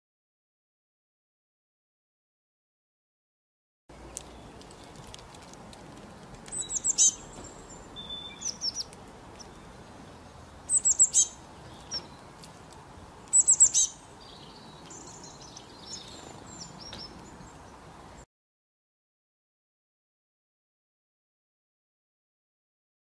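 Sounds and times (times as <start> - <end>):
songbird chirping: 3.9 - 18.3.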